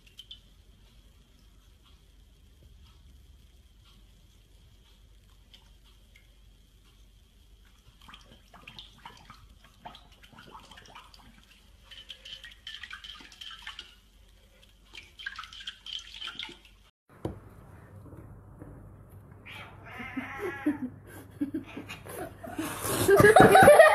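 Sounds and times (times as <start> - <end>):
water splashing in dog bowl: 8.0 - 14.0, 14.9 - 16.9.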